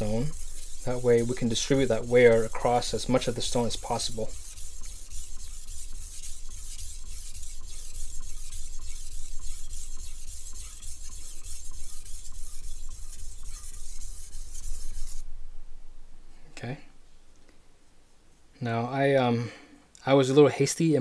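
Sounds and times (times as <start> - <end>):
knife scraping on whetstone: 0.0 - 15.2.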